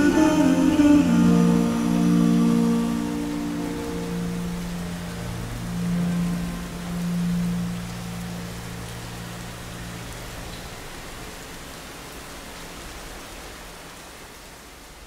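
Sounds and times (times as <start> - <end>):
reverb-heavy music notes: 0.0 - 10.2
rain hissing: 0.0 - 15.0.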